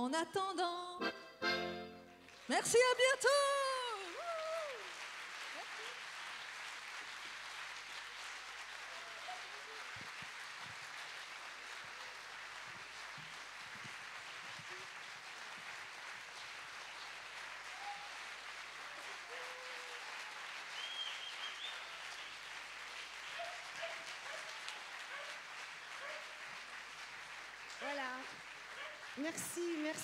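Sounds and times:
audience applauding: 2.2 - 30.0
brief cheers: 3.3 - 5.0, 17.6 - 18.3, 18.9 - 21.9
whistle: 20.8 - 21.9.

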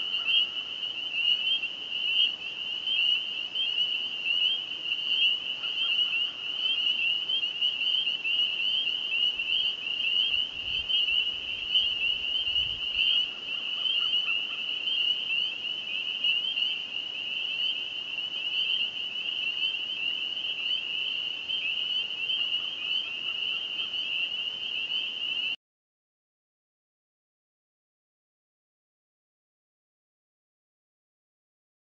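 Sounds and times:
chorus of frogs peeping: 0.0 - 25.6.

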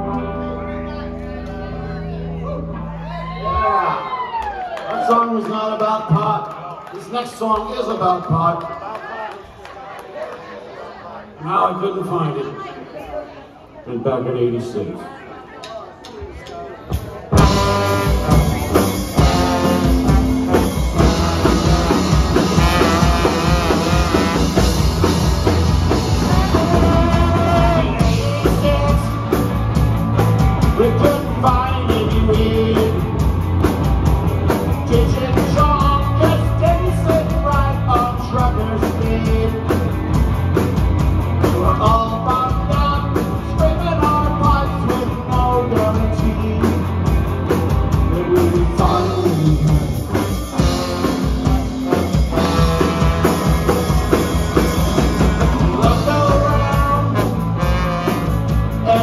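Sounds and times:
live punk rock band: 0.0 - 4.6, 16.9 - 59.0.

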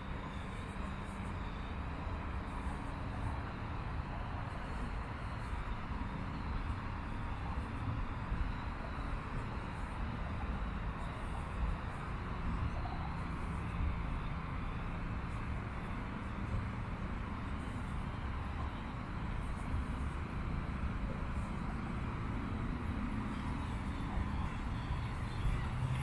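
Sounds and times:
distant city traffic hum: 0.0 - 26.0.

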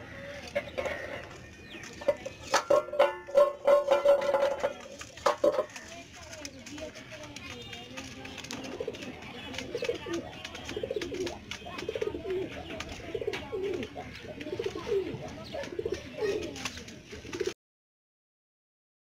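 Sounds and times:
pigeons cooing: 0.0 - 4.8, 8.0 - 17.6.

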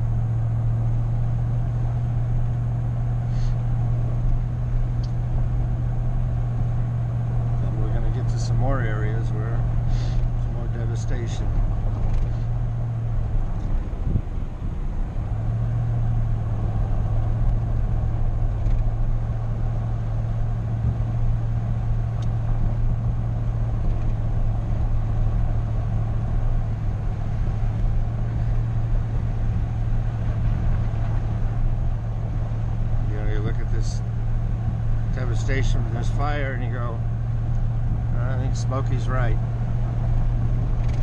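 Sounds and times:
car engine drone: 0.0 - 41.0
tyre and road noise: 0.0 - 41.0.

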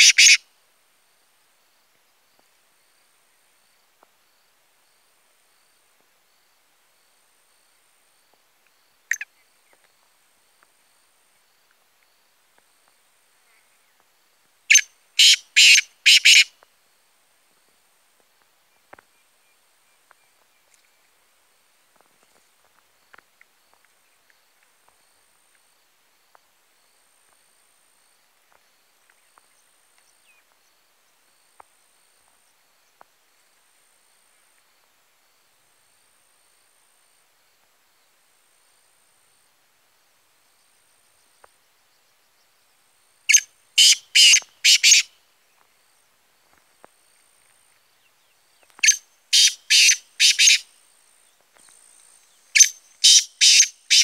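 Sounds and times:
francolin grating call: 0.0 - 0.4, 14.7 - 16.5, 43.3 - 45.2, 48.8 - 50.7, 52.6 - 54.0
high insect chirps: 0.0 - 0.5, 1.7 - 14.1, 14.7 - 17.0, 40.4 - 54.0.

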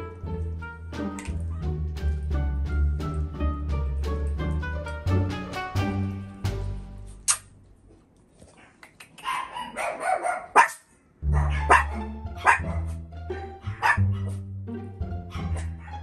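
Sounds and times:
background music: 0.0 - 7.6, 11.2 - 16.0
puppies barking and yipping: 9.2 - 14.4, 15.2 - 16.0.

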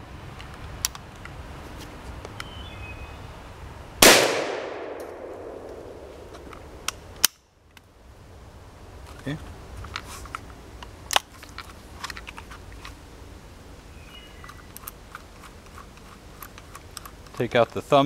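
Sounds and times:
shotgun gunshot with echo: 4.0 - 6.1
shotgun action clicks: 4.0 - 7.8.

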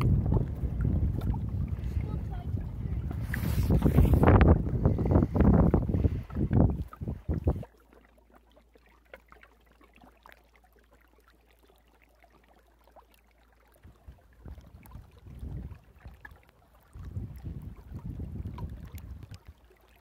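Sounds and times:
wind buffeting microphone: 0.0 - 7.7, 13.9 - 19.5.

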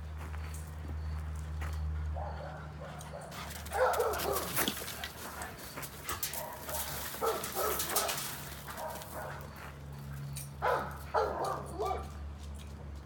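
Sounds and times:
dog barking and yipping: 2.2 - 5.5, 6.1 - 9.6, 10.6 - 12.2.

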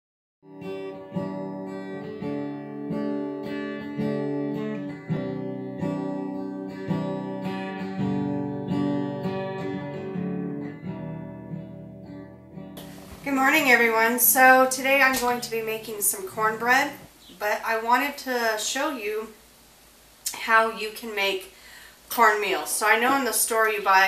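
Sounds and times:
acoustic guitar chords: 0.4 - 18.6.

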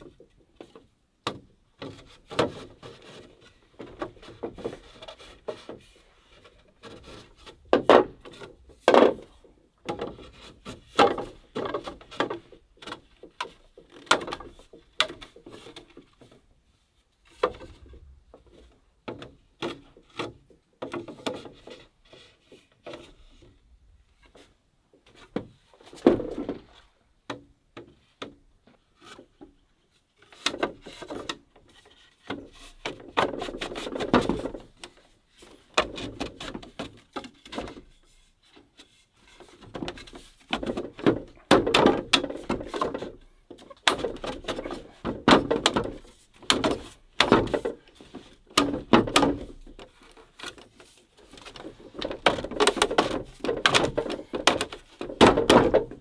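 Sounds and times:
hollow bamboo knocks: 0.0 - 5.9, 6.5 - 16.4, 30.3 - 38.0, 38.8 - 50.6, 51.3 - 56.0
bamboo scraping on bamboo: 1.8 - 27.1, 27.9 - 56.0.

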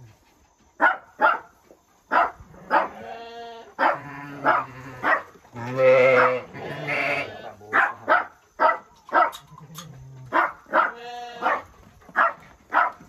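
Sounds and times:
dog barking: 0.8 - 3.0, 3.8 - 5.4, 6.1 - 6.5, 7.7 - 9.4, 10.3 - 13.0.

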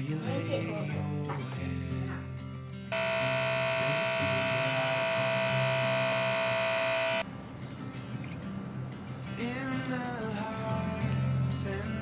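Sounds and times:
espresso machine pump buzzing: 3.0 - 7.2.

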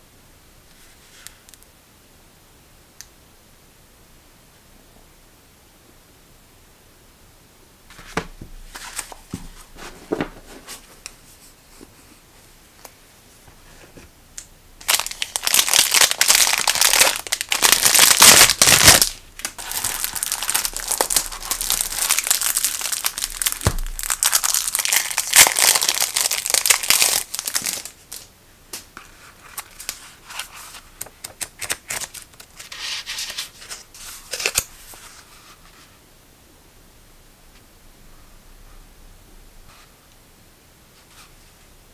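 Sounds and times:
paper rustling and tapping: 7.9 - 11.2
plastic packaging crinkling: 14.8 - 28.3, 29.4 - 35.1.

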